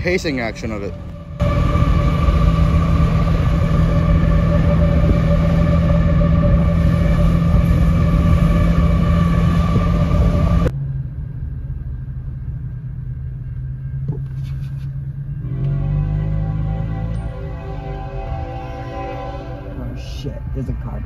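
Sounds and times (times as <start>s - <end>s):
diesel locomotive rumble and whine: 0.0s - 21.0s
wind and road noise: 0.0s - 21.0s
steady hum inside car: 10.1s - 15.7s.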